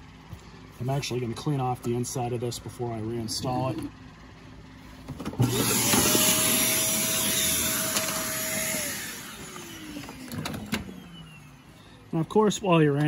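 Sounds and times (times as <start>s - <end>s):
motor winding down: 5.3s - 11.7s
vacuum cleaner whine: 5.3s - 11.8s.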